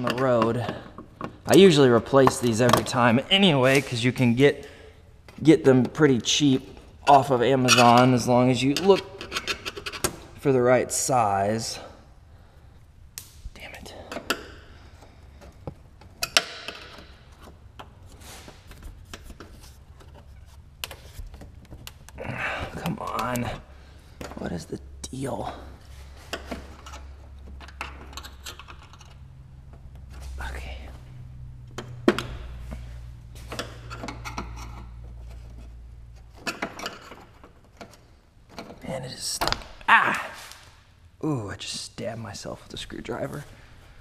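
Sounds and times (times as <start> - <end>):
screwdrivers clicking and scraping: 7.7 - 10.3, 14.0 - 23.6, 25.9 - 30.4, 31.7 - 39.6
rustling scrape: 18.0 - 21.6.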